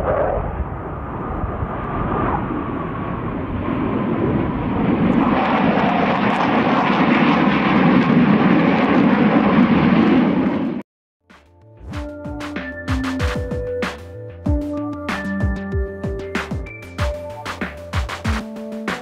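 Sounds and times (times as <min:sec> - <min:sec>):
jet fighter roar: 0:00.0 - 0:10.8.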